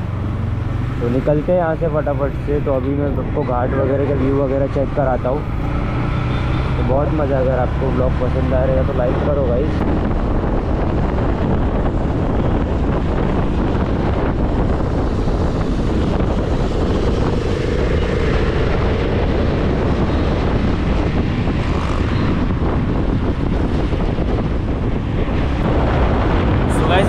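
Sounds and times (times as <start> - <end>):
vehicle engine and road rumble: 0.0 - 27.0
wind buffeting microphone: 0.0 - 27.0.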